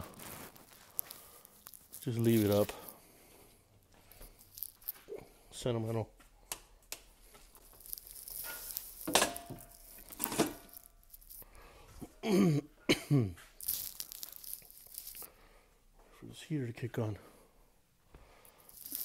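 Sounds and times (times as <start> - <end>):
things being handled: 0.0 - 3.0, 3.9 - 5.2, 6.6 - 12.0, 13.4 - 15.3, 18.4 - 19.0
man coughing: 12.0 - 13.5.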